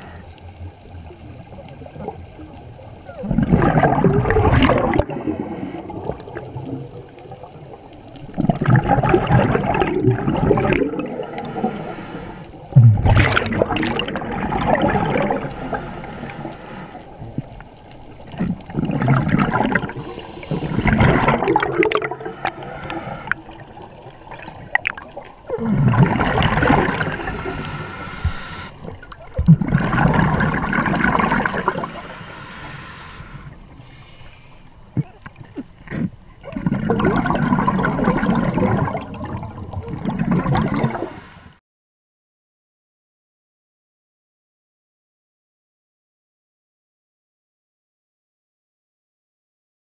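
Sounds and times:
exhaled bubbles underwater: 0:00.0 - 0:33.5, 0:34.9 - 0:41.3
hissing regulator breaths: 0:11.1 - 0:12.8, 0:15.2 - 0:17.3, 0:19.8 - 0:24.6, 0:26.5 - 0:29.1, 0:31.2 - 0:34.7, 0:40.5 - 0:41.6.

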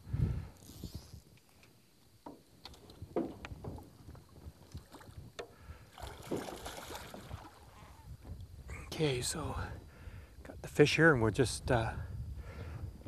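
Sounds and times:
fish splashing in a net: 0:05.9 - 0:07.7
knocks against boat: 0:06.2 - 0:07.4.

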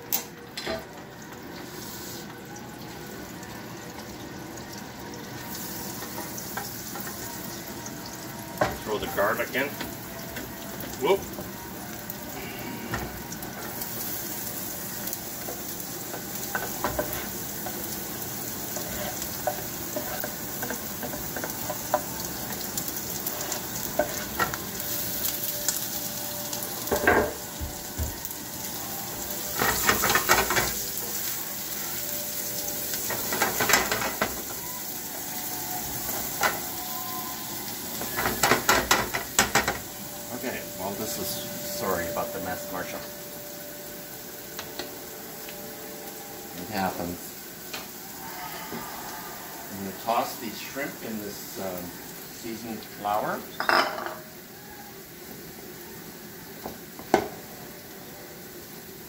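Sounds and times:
garlic and onion sizzling in butter: 0:00.0 - 0:59.0
spatula scraping a pan: 0:18.6 - 0:22.1.

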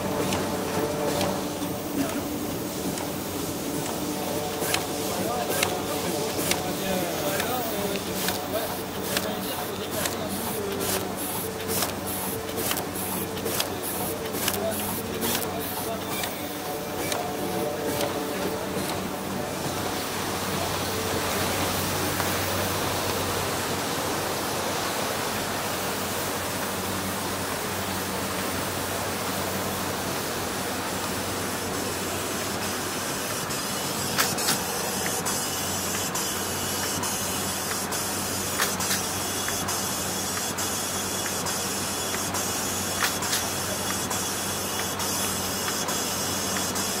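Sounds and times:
machine air hiss: 0:00.0 - 0:22.8, 0:24.8 - 0:47.0
sharp machine clicks: 0:04.6 - 0:05.8, 0:07.3 - 0:16.4, 0:17.0 - 0:17.3.

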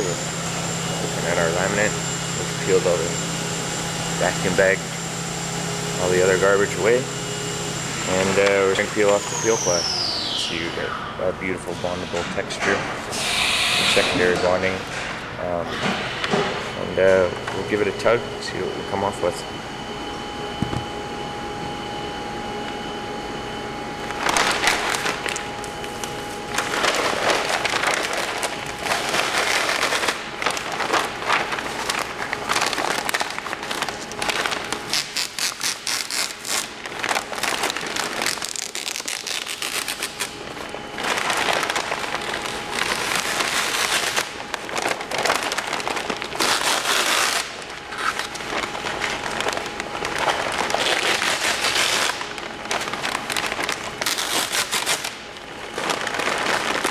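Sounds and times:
peel ply crackling tear: 0:45.0 - 0:48.5, 0:53.5 - 0:55.2.

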